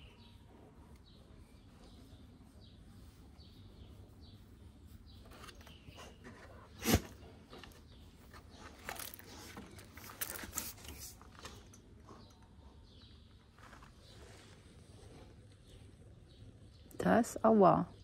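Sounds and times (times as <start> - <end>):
birds chirping: 0.0 - 18.0
dogs wrestling clicks and scuffling: 5.6 - 13.0.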